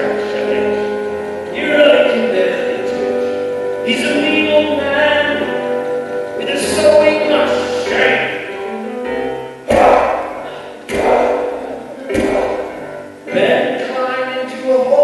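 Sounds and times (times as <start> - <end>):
acoustic guitar: 0.0 - 15.0
man singing: 3.8 - 5.7, 6.4 - 8.4, 9.7 - 15.0.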